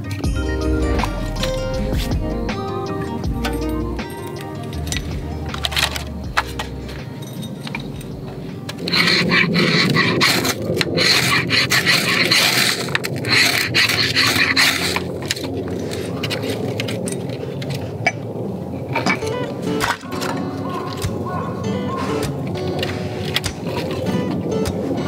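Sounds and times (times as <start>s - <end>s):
metal striker rasping on fire-steel rod: 3.4s - 15.1s.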